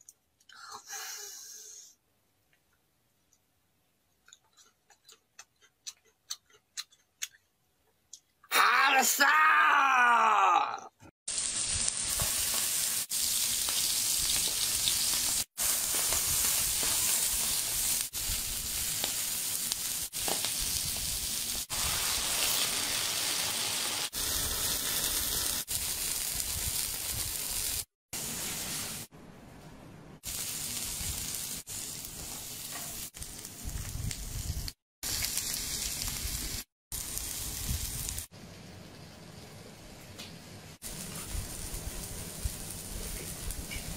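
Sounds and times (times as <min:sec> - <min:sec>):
food sizzling on hot stone: 0:11.3 - 0:29.1, 0:30.2 - 0:43.9.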